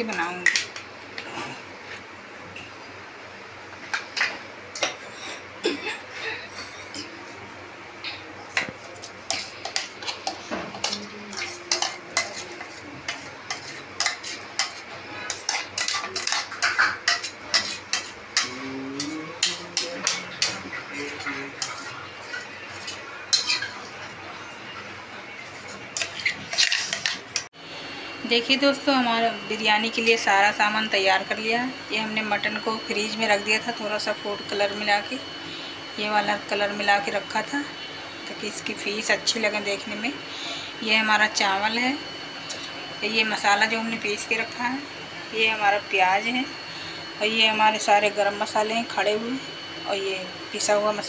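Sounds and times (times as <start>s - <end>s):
steel spoon scraping steel jar: 17.1s - 20.6s.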